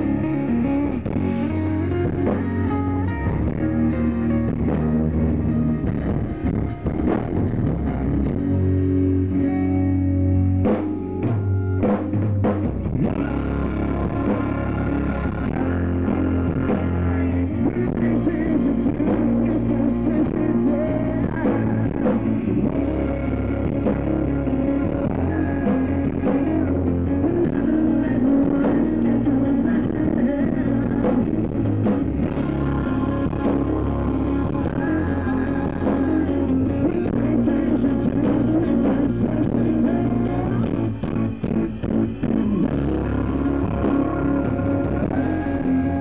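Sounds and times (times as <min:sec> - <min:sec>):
live rock band playing: 0:00.0 - 0:46.0.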